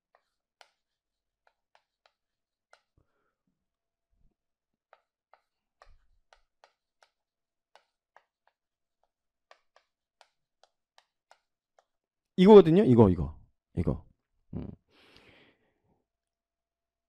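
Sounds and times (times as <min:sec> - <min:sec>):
chalk tapping and scraping: 0:00.0 - 0:03.0, 0:04.8 - 0:12.0.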